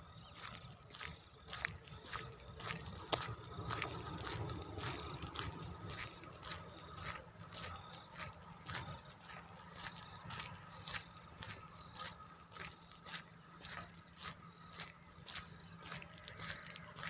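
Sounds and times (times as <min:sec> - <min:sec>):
wind rumble on microphone: 0:00.0 - 0:11.8
faint steady high tone: 0:00.0 - 0:17.0
footsteps on paved road: 0:00.0 - 0:17.0.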